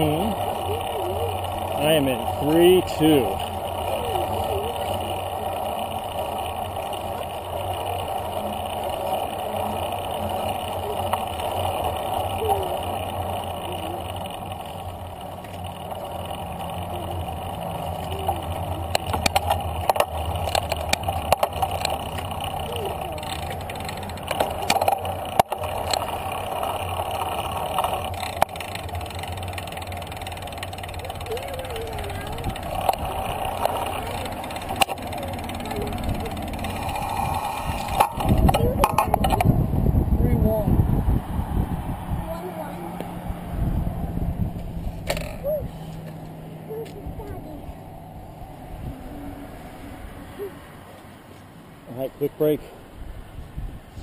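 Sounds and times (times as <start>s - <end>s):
bike clicks and rattles: 0.0s - 39.7s, 44.5s - 47.4s
bicycle tyre noise: 0.0s - 51.5s
road traffic rumble: 0.0s - 54.0s
wind noise on microphone: 35.8s - 42.5s, 43.1s - 45.9s, 52.9s - 54.0s.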